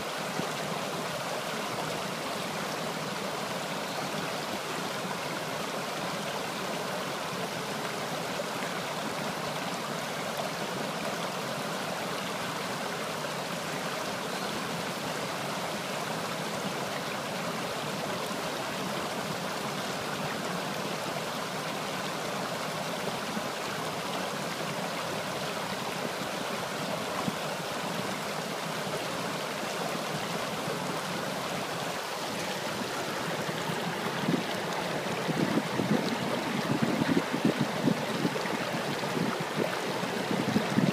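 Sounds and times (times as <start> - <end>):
stream rushing over rocks: 0.0 - 40.9.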